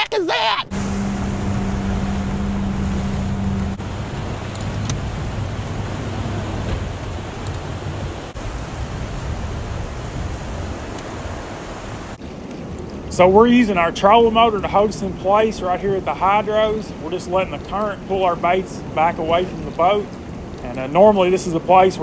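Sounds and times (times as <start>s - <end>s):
motor hum: 0.7s - 12.2s
rushing river water: 0.7s - 22.0s
wind on microphone: 0.8s - 20.9s.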